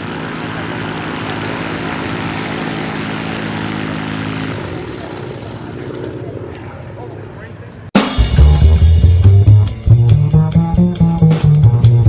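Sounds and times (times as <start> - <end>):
ultralight engine and propeller: 0.0 - 7.9.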